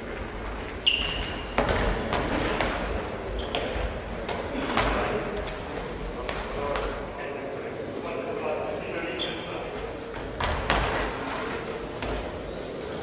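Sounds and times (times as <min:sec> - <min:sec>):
balls bouncing on hall floor: 0:00.0 - 0:07.1, 0:10.1 - 0:11.2, 0:11.9 - 0:12.5.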